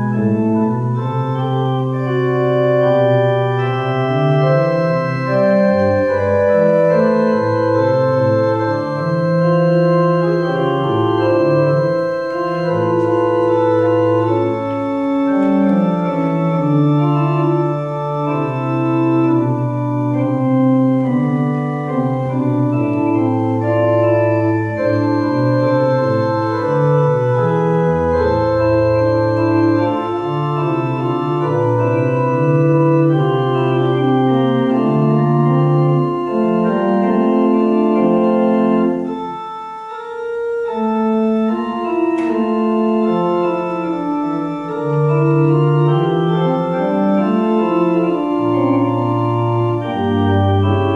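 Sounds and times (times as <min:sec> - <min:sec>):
organ chords: 0:00.0 - 0:50.9.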